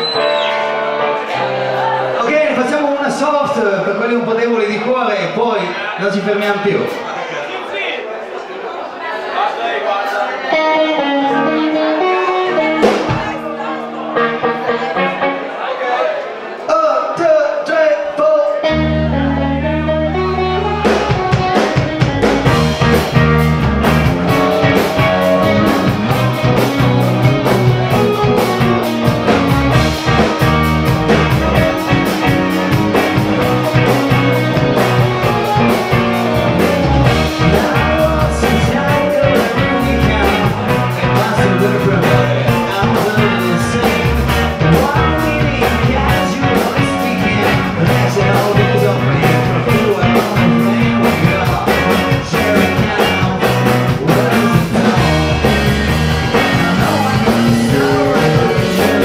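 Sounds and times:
electric guitars: 0:00.0 - 0:02.6, 0:10.5 - 0:15.6, 0:18.6 - 0:59.0
bass guitar: 0:10.6 - 0:15.5, 0:18.6 - 0:59.0
drums: 0:10.7 - 0:14.5, 0:18.7 - 0:59.0.

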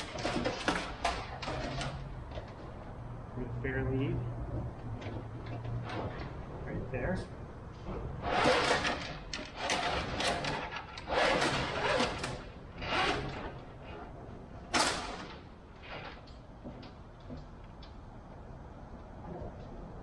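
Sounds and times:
steel cable scraping and rattling: 0:00.0 - 0:02.8, 0:07.8 - 0:16.5.

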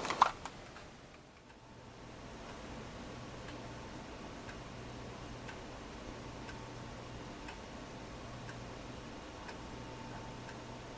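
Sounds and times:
low steady hum and hiss: 0:00.0 - 0:10.9.

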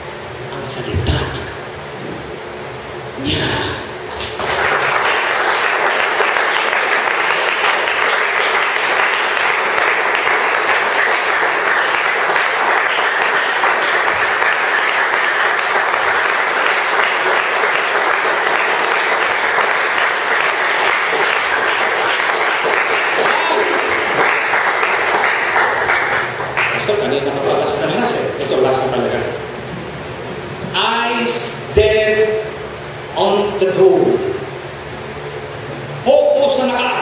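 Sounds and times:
crowd applause: 0:04.1 - 0:28.0.

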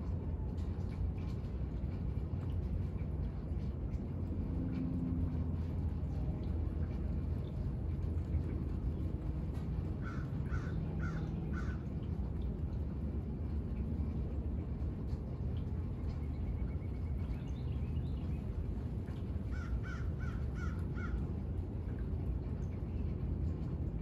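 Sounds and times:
low background rumble: 0:00.0 - 0:24.0
crow cawing: 0:10.0 - 0:11.9, 0:19.5 - 0:21.2.

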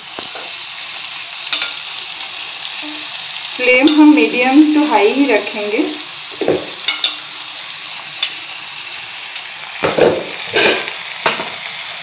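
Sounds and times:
utensil scraping and knocking wok: 0:00.0 - 0:00.8, 0:01.4 - 0:11.8
food sizzling in a wok: 0:00.0 - 0:12.0.

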